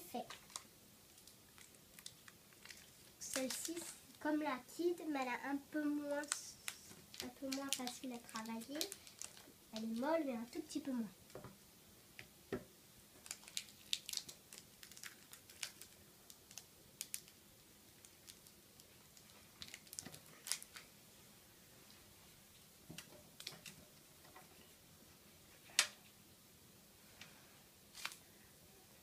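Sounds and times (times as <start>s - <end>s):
foil wrapper crinkling: 0.1s - 4.2s, 6.2s - 10.7s, 13.2s - 17.4s, 18.0s - 20.9s, 27.9s - 28.2s
foil wrapper snapping: 6.3s - 10.0s, 13.2s - 17.4s, 18.0s - 20.8s, 28.0s - 28.2s.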